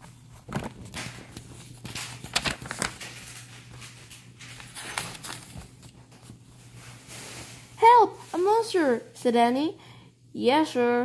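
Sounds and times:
book pages flipping: 0:00.0 - 0:07.7.

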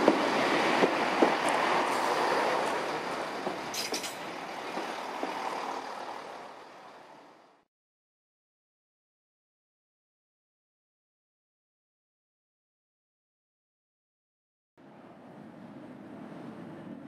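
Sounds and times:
train running past: 0:00.0 - 0:07.6
wheels knocking over rail joints: 0:02.6 - 0:05.4.

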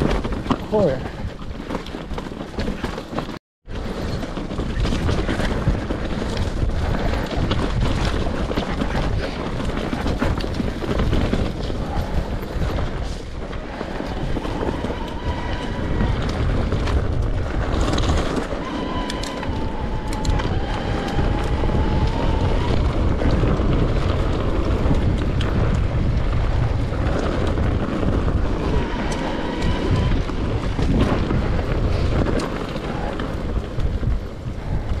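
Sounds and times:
wind rush: 0:03.7 - 0:35.0.

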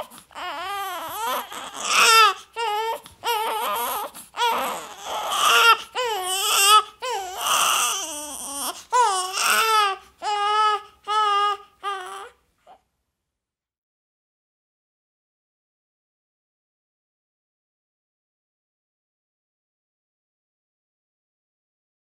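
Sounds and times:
baby crying: 0:00.0 - 0:12.8.

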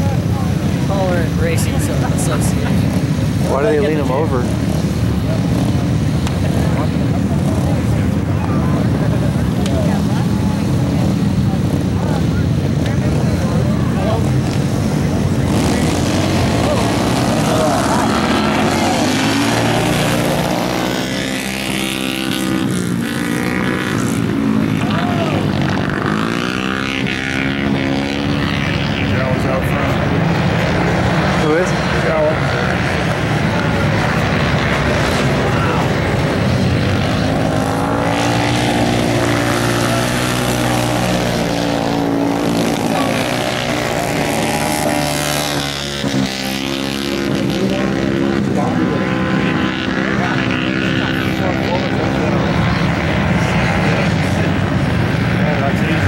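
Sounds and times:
motorcycle engines racing: 0:00.0 - 0:56.0.

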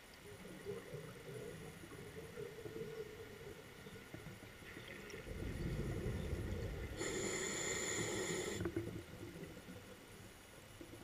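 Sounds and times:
hissing regulator inhalation: 0:07.0 - 0:08.7.

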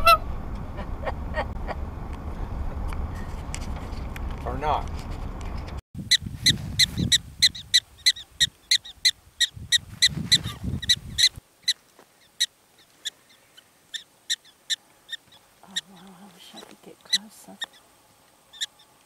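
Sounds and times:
low rumble: 0:00.0 - 0:08.0
prairie dog chirping barks: 0:06.1 - 0:15.9, 0:17.0 - 0:17.8, 0:18.5 - 0:19.0.

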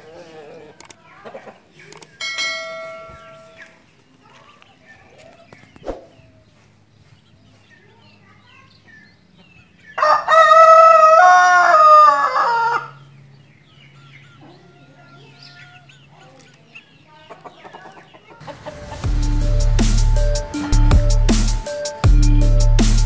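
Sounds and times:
rooster crowing: 0:10.0 - 0:13.0, 0:14.4 - 0:15.9.

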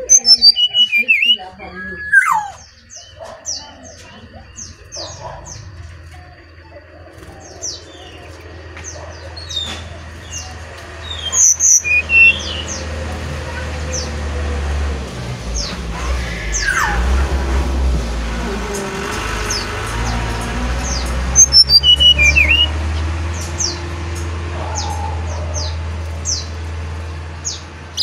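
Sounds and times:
bird calling high falling notes: 0:00.0 - 0:05.2, 0:09.3 - 0:13.1, 0:15.4 - 0:23.1.

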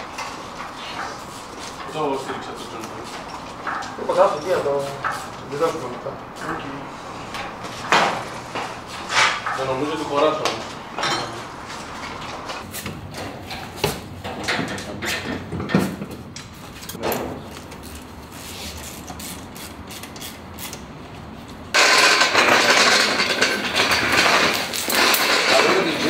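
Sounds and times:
loud steady noise: 0:21.8 - 0:26.0.

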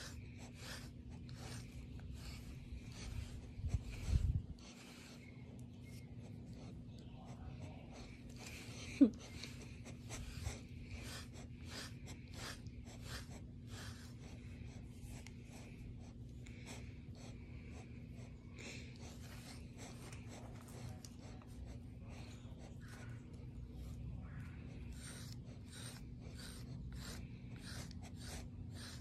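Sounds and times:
grooming tool raking dog's coat: 0:00.0 - 0:05.2, 0:07.5 - 0:15.8, 0:18.7 - 0:21.9, 0:24.5 - 0:29.0.

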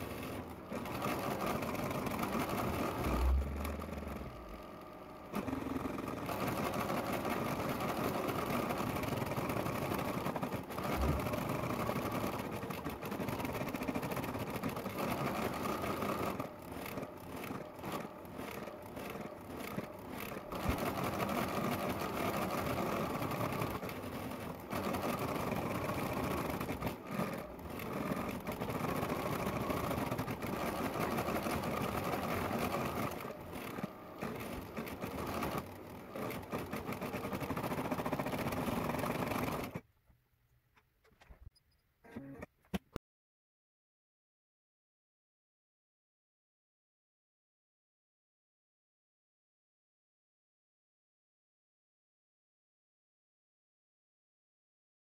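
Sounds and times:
embroidery machine stitching: 0:00.0 - 0:39.8.

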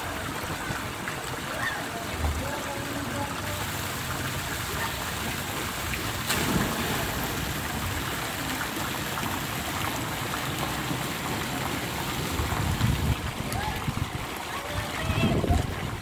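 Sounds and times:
fountain water spattering: 0:00.0 - 0:16.0
person jumping into pool splash: 0:03.8 - 0:15.9.

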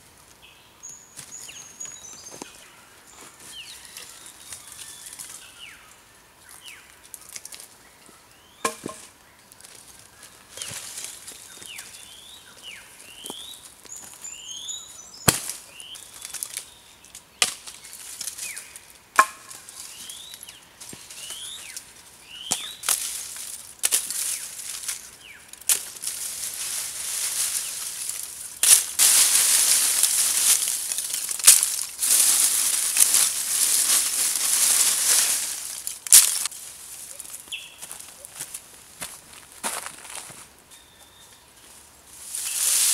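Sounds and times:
charcoal crunching clatter: 0:15.3 - 0:16.7, 0:22.5 - 0:36.5.

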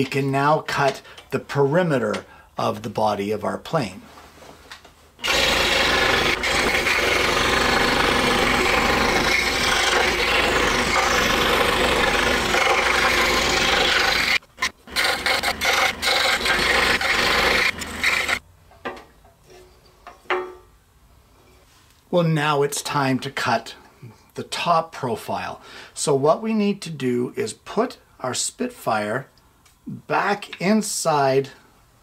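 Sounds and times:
scroll saw cutting wood: 0:05.2 - 0:18.4.

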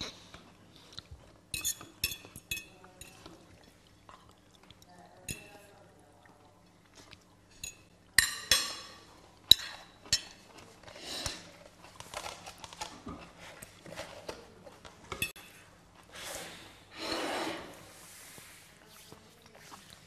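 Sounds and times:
metal spoon clinking on dishes: 0:01.5 - 0:03.8, 0:05.2 - 0:05.7, 0:07.5 - 0:10.6
soft scraping and rustling: 0:10.5 - 0:20.0.

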